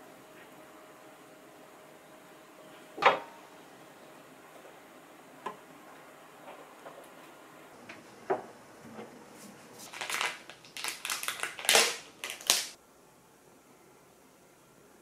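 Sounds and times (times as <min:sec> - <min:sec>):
foil lid crinkling and tearing: 0:09.8 - 0:12.8.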